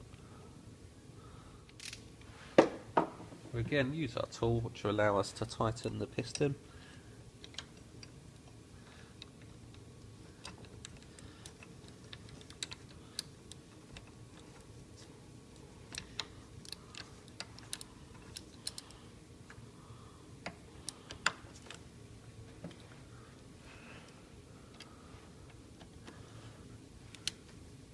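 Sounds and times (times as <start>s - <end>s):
tool and parts clicking: 1.7s - 2.0s, 7.4s - 8.5s, 10.4s - 14.6s, 15.9s - 19.6s.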